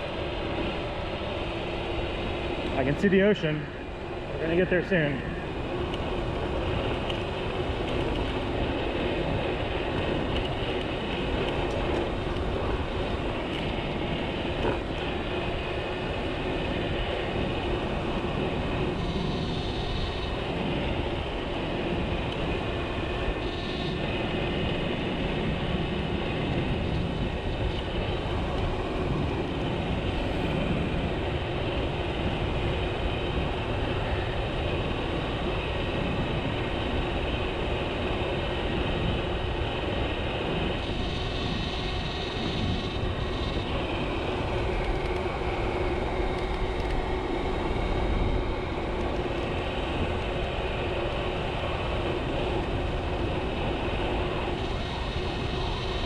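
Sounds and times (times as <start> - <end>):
tire and road rumble: 0.0 - 56.0
wind on microphone: 0.0 - 56.0.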